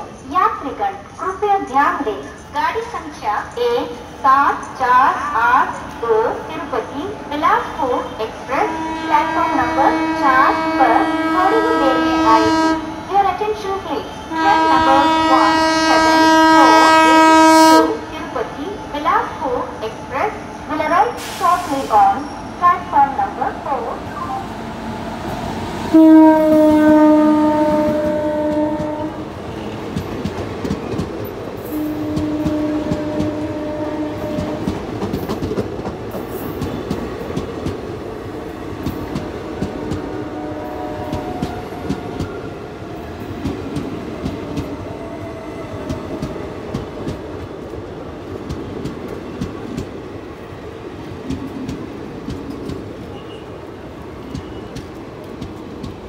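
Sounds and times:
train coaches rumbling over rails: 0.0s - 56.0s
electric locomotive horn blasts: 8.4s - 13.1s, 14.2s - 18.1s, 25.9s - 29.3s, 31.7s - 34.8s, 39.8s - 41.9s.

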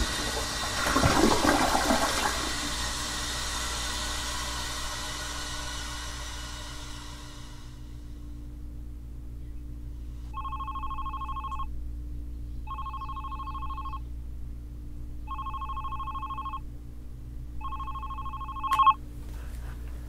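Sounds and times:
telephone warbling rings: 10.4s - 11.7s, 12.7s - 14.0s, 15.3s - 16.6s, 17.6s - 19.0s
phone pickup click: 18.7s - 19.0s.

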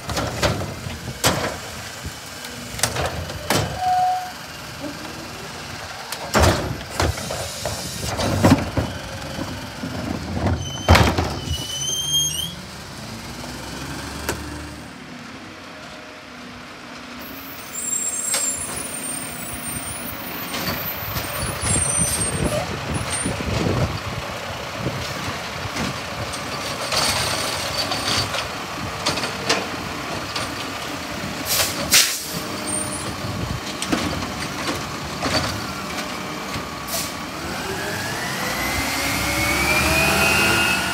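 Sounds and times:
carts clanking: 2.5s - 12.6s
truck engine revving: 11.2s - 15.1s, 18.6s - 40.9s.

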